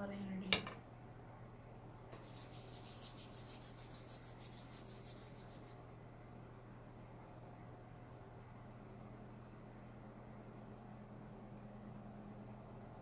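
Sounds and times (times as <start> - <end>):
palms rubbing together: 2.2 - 5.8.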